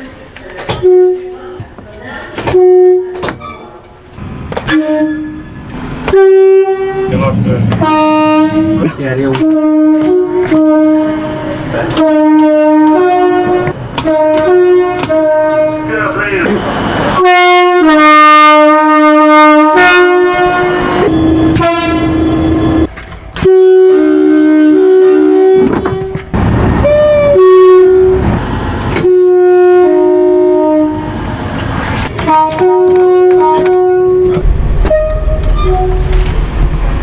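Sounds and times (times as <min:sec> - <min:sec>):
two-tone train horn blasts: 0:00.7 - 0:01.6, 0:02.4 - 0:03.2, 0:04.6 - 0:31.3, 0:32.1 - 0:36.2
low rumble: 0:34.3 - 0:37.0.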